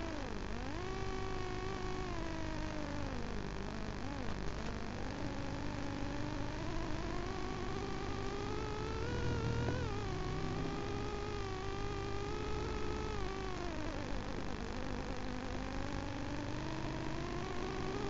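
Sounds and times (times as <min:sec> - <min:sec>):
motorcycle engine: 0:06.2 - 0:13.2.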